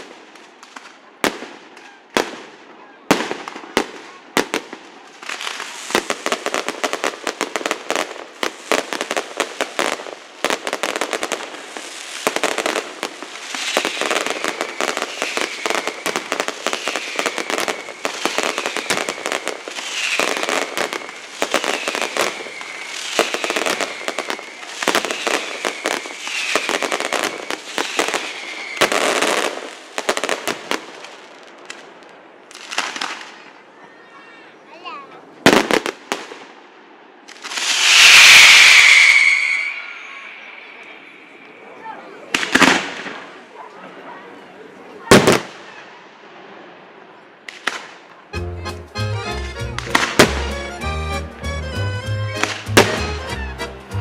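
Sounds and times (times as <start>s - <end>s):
fireworks crackling and banging: 0.0s - 33.9s, 34.8s - 54.0s
falling firework whistles: 12.0s - 30.3s, 37.3s - 43.3s.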